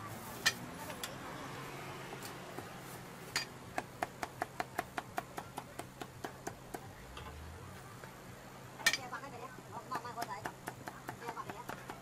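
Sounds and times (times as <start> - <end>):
cleaver chopping on wooden block: 3.7 - 6.9.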